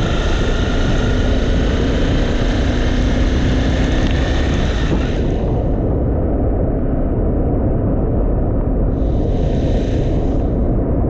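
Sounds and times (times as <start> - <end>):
motorcycle engine accelerating: 0.0 - 7.0
wind rush on microphone: 0.0 - 11.0.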